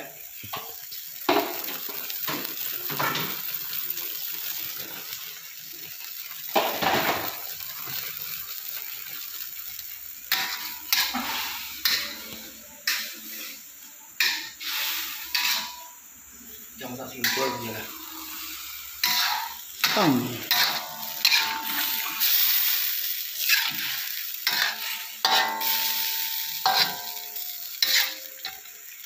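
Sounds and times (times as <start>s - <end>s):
pork sizzling in a wok: 0.0s - 29.0s
metal spatula scraping a wok: 10.3s - 28.7s.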